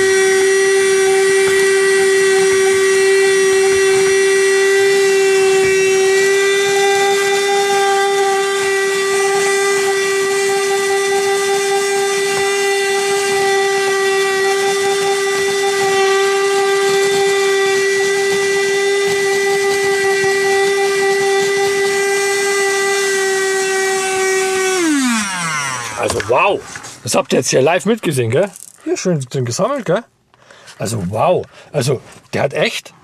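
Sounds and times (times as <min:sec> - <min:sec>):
handheld vacuum cleaner whine: 0:00.0 - 0:27.0.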